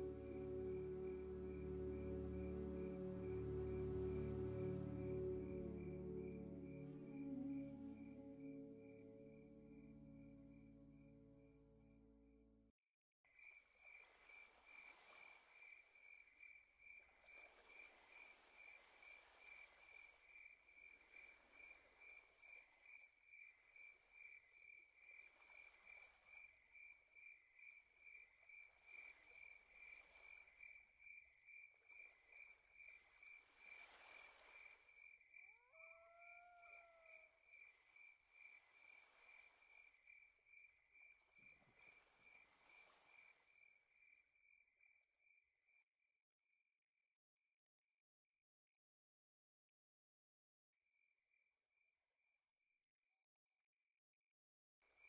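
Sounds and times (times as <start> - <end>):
crickets chirping: 0.0 - 11.6, 13.4 - 45.5.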